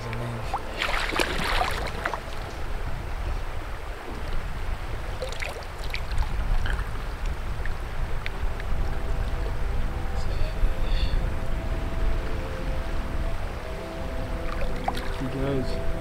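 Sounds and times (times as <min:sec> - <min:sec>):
water splashes and drips: 0:00.0 - 0:02.7, 0:05.0 - 0:09.5, 0:14.5 - 0:15.4
river water running and lapping: 0:00.0 - 0:16.0.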